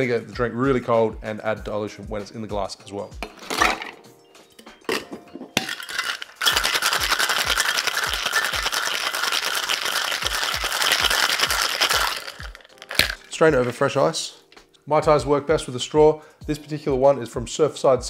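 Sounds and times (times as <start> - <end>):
ice clinking into metal tin: 4.9 - 13.7
ice rattling in shaken shaker: 5.6 - 13.8.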